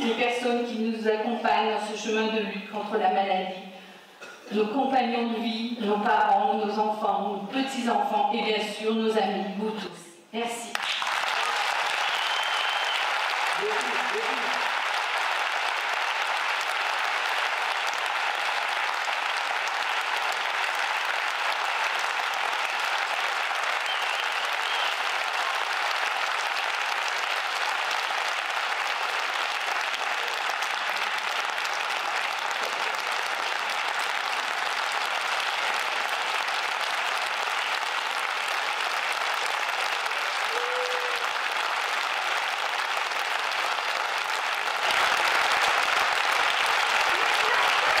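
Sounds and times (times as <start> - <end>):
audience applauding: 10.7 - 48.0.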